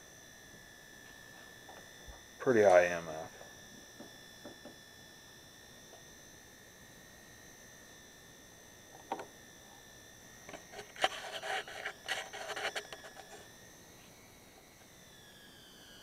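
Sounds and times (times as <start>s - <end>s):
rustling and scraping: 10.5s - 13.5s.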